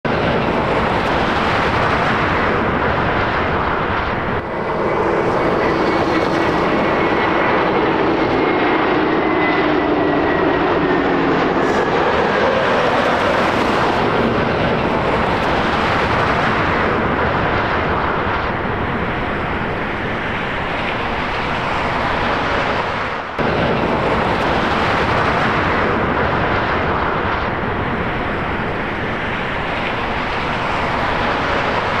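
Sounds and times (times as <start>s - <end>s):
jet airliner engines rushing: 0.0s - 32.0s.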